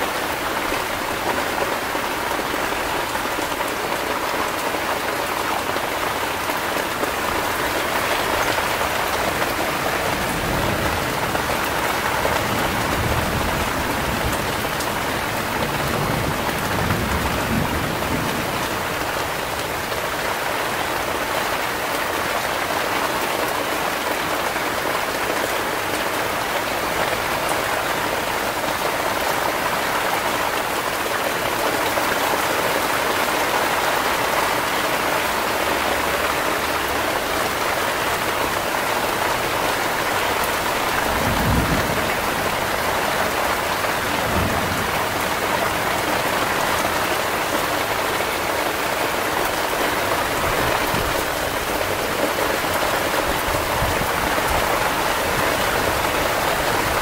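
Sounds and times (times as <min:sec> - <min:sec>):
heavy rain falling: 0:00.0 - 0:57.0
low thunder rumbles: 0:39.2 - 0:47.0.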